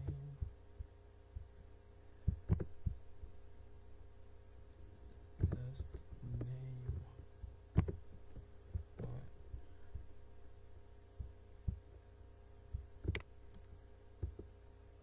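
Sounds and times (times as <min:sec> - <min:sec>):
low electrical hum: 0:00.0 - 0:15.0
computer mouse clicks: 0:02.4 - 0:03.0, 0:07.8 - 0:08.0, 0:13.0 - 0:14.5.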